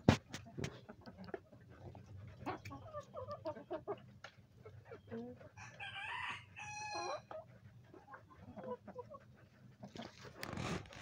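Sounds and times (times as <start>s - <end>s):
chickens clucking: 0.0s - 11.0s
chickens pecking: 0.0s - 11.0s
rooster crowing: 5.6s - 7.2s.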